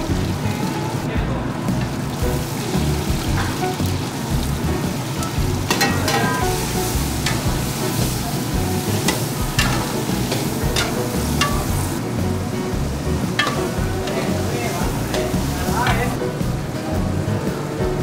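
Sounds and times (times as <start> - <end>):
vegetables sizzling in hot oil: 0.0 - 18.0
metal ladle clinking on pot: 5.2 - 7.6, 8.9 - 11.9, 13.4 - 14.4.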